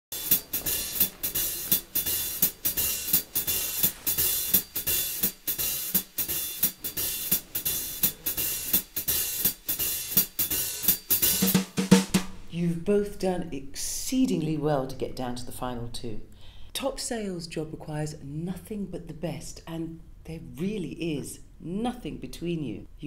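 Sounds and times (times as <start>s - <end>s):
drum kit beat: 0.0s - 12.5s.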